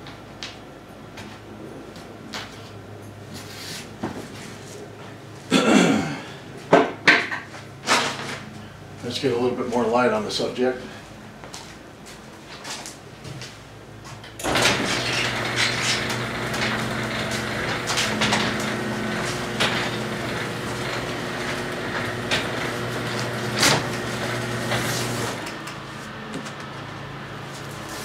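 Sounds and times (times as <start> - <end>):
garage door opener motor hum: 14.3 - 28.0.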